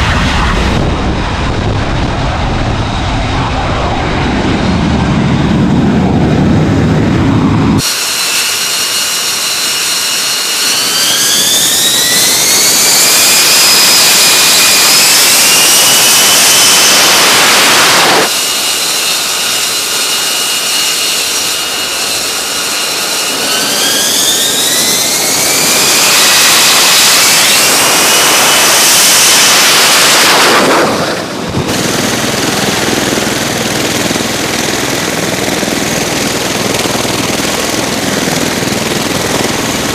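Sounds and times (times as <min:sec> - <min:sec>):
deep jet rumble: 0:00.0 - 0:07.9, 0:20.8 - 0:39.9
jet engine whine spooling up: 0:00.0 - 0:39.9
steady jet engine noise: 0:00.0 - 0:39.9.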